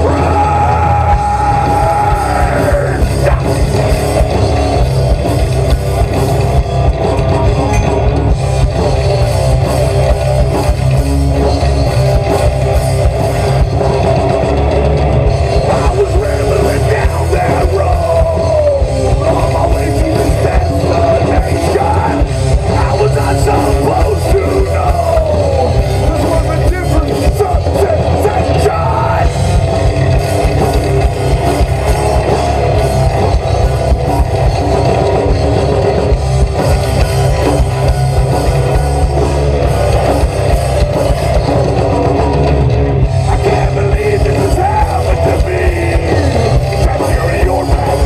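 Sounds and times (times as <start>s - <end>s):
person singing and yelling: 0.0s - 4.1s, 15.6s - 29.4s, 43.2s - 48.0s
drum kit: 0.0s - 48.0s
electric guitars: 0.0s - 48.0s
rock band playing: 0.0s - 48.0s.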